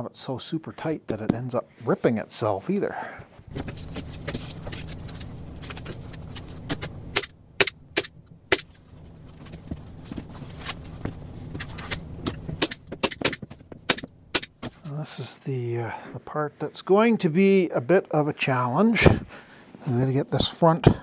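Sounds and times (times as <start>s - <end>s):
low steady hum: 0.0s - 21.0s
staple gun snapping shots: 12.6s - 14.5s.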